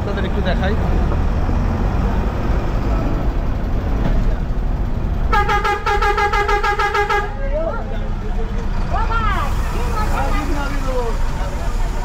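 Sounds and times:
bus engine rumble: 0.0 - 12.0
warbling bus horn: 5.3 - 7.5.

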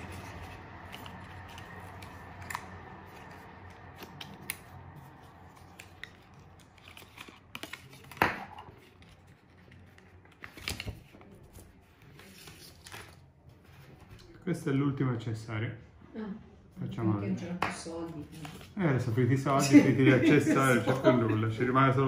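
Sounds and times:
packaging rustling: 0.0 - 13.3.

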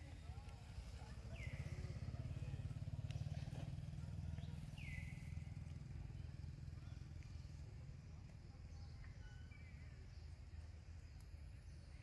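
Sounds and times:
small engine running: 0.7 - 8.0.

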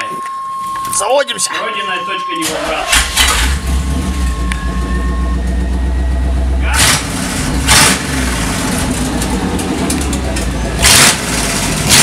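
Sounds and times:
engine bursts: 2.3 - 12.0
engine idling without mufflers: 2.9 - 7.7.

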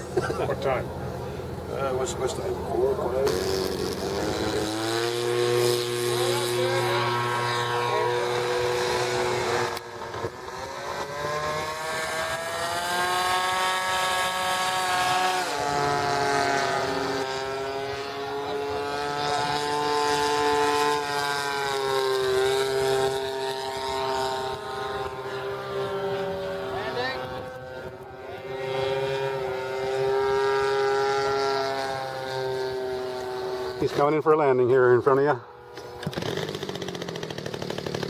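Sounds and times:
model airplane motor running: 1.1 - 34.3, 35.0 - 38.0.

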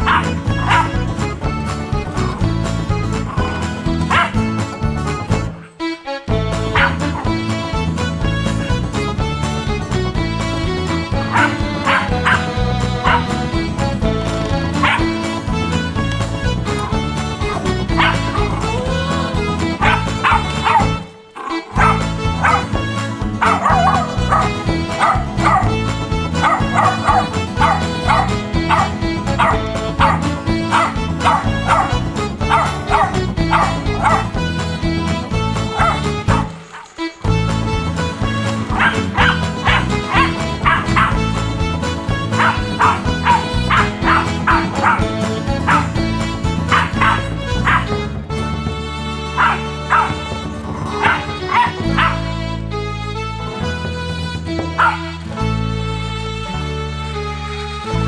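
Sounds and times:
puppy yapping and barking: 0.0 - 1.0, 4.1 - 4.4, 6.8 - 7.3, 11.3 - 13.3, 18.0 - 18.7, 19.8 - 22.7, 23.4 - 25.7, 26.4 - 34.3, 35.7 - 36.9, 38.7 - 41.2, 42.4 - 45.1, 46.7 - 47.9, 49.4 - 50.2, 51.0 - 52.2, 54.8 - 55.1
background music: 0.0 - 58.0.

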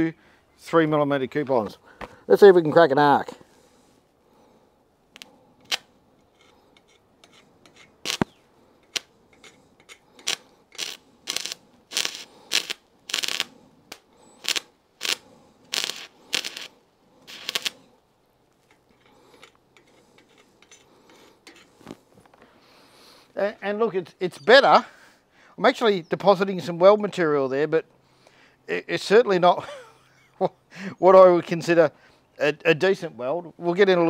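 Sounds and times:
welding arc crackling: 7.8 - 9.1, 9.9 - 17.9.

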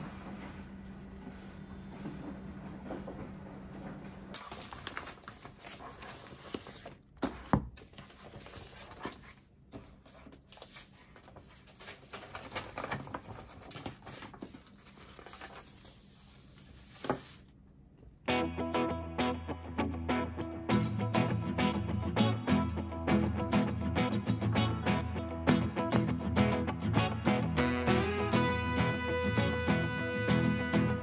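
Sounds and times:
paper rustling and shuffling: 4.3 - 17.6.

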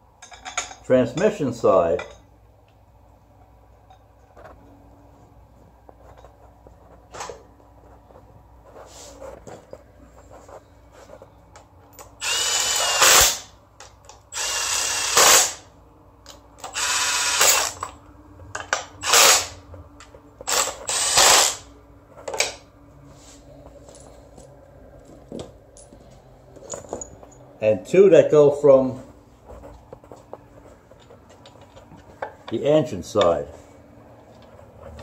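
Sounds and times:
clicks of bolts threaded by hand: 9.4 - 15.5, 29.5 - 32.6
cordless power driver running: 12.2 - 13.5, 14.3 - 15.6, 16.6 - 17.8, 19.0 - 19.6.

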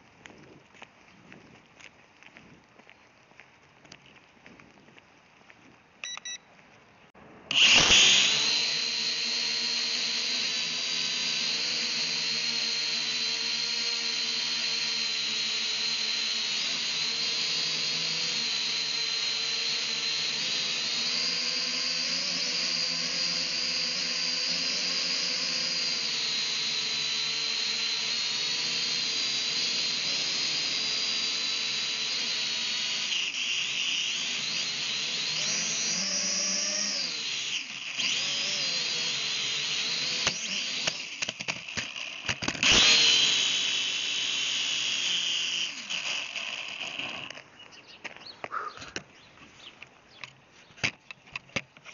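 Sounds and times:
drone propellers whining: 7.2 - 47.5.

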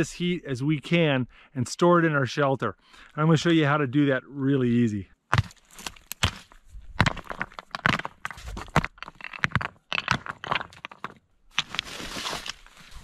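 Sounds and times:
gravel crunching underfoot: 5.3 - 13.0
gravel scraping crunch: 5.3 - 13.0
rocks clacking together: 5.3 - 13.0.

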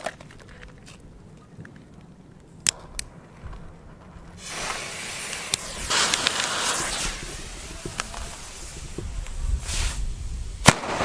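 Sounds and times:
firecracker fuse hissing: 4.3 - 11.0
sharp clicks: 5.3 - 8.4.

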